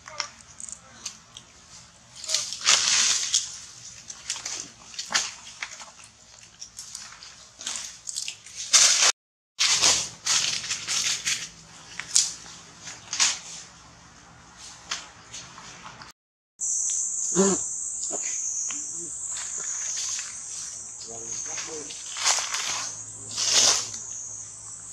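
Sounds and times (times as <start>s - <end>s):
leaves and branches rustling: 0.0s - 16.1s, 18.1s - 24.9s
high insect drone: 16.6s - 24.9s.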